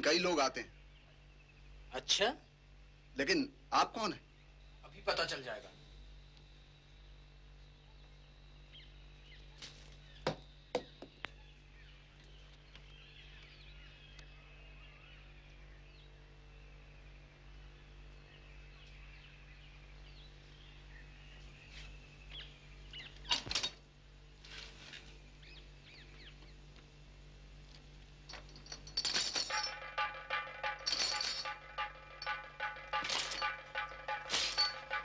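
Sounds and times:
faint bird chirping: 0.0s - 23.5s, 25.1s - 26.7s
low electrical hum: 0.0s - 35.0s.

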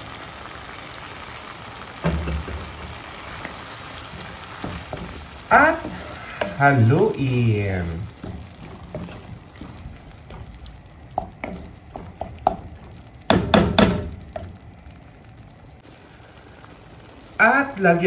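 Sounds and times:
sauce simmering: 0.0s - 18.0s
wood knocking on pan: 2.0s - 14.6s
wooden spatula scraping pan: 2.6s - 12.9s.

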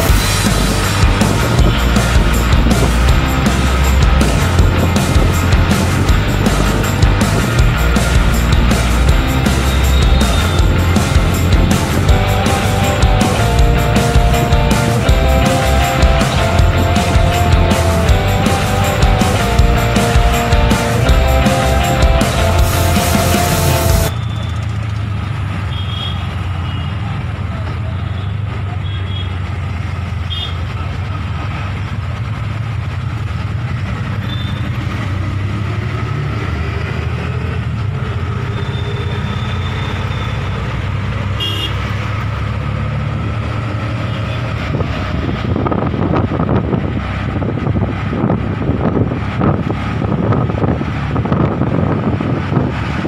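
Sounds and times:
small engine running steadily: 0.0s - 26.1s, 29.1s - 35.8s
short horn toots: 41.4s - 41.8s
wind buffeting microphone: 44.5s - 53.0s.

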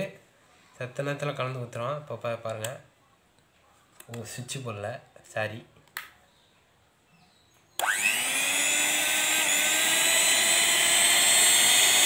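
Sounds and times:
electric hand mixer running: 7.8s - 12.0s.

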